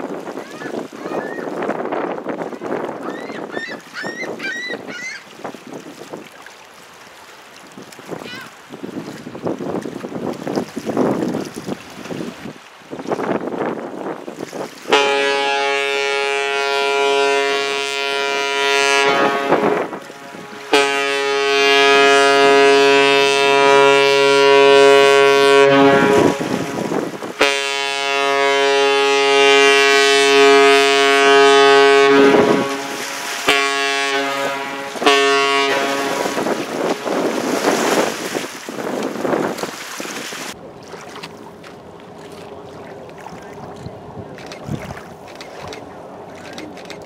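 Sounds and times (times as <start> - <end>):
wind on microphone: 0.0 - 6.4, 7.7 - 47.0
ship steam whistle blasts: 14.9 - 37.5.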